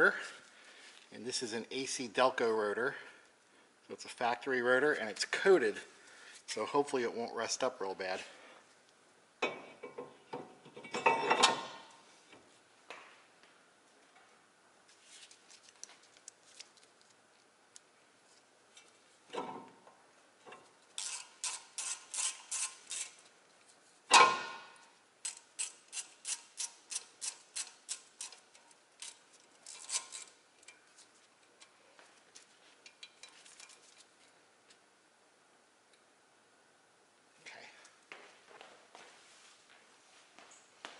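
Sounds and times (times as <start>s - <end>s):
loud metal clank: 24.1s - 24.8s.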